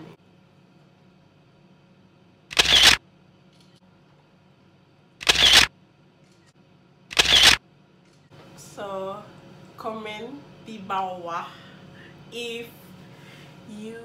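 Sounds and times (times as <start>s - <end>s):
camera shutter: 2.5s - 3.0s, 5.2s - 6.5s, 7.1s - 8.2s.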